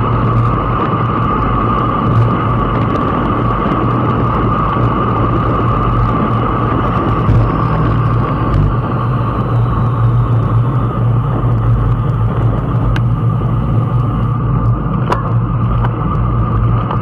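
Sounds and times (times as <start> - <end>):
wind on microphone: 0.0 - 17.0
tyre rumble: 0.2 - 17.0.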